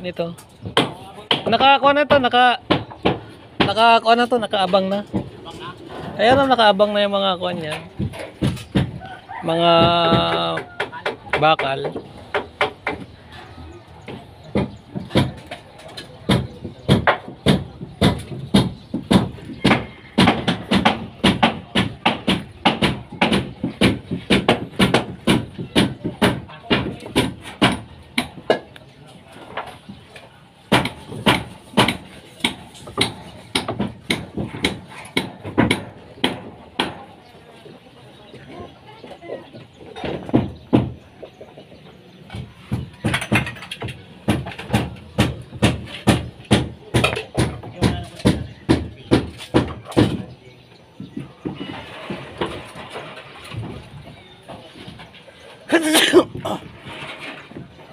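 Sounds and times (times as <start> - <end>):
hammer striking wood: 0.6 - 3.9, 7.7 - 9.1, 9.8 - 13.1, 16.3 - 28.7, 30.7 - 37.1, 40.0 - 41.0, 42.3 - 50.3.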